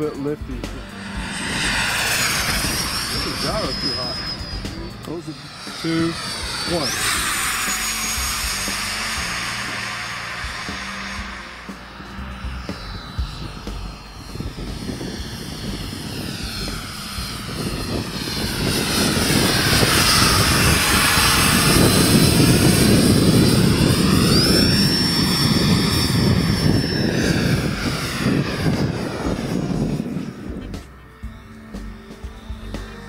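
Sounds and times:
electric ducted fan jet flying past: 0:00.0 - 0:33.0
thin high whine: 0:00.0 - 0:33.0.

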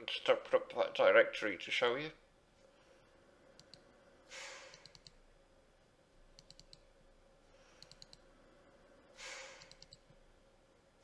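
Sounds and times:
soft rush of noise: 0:00.2 - 0:11.0
computer mouse double-clicks: 0:04.7 - 0:05.2, 0:06.4 - 0:06.8, 0:07.8 - 0:08.2, 0:09.5 - 0:10.1.

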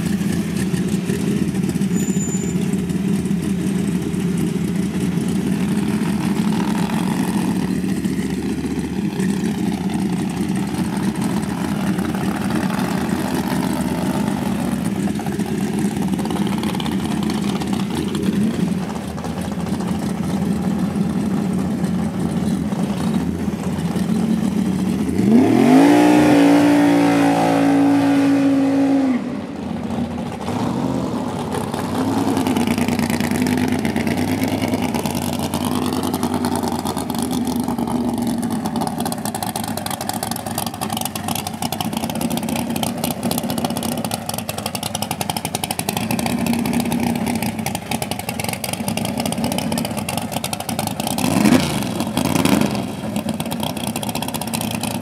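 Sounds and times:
race car engine revving: 0:23.9 - 0:40.0, 0:50.8 - 0:53.6.

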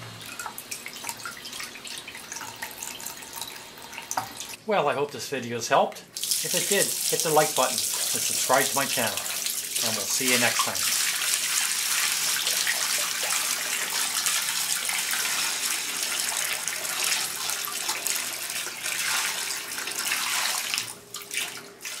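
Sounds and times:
water running and splashing: 0:06.1 - 0:22.0.

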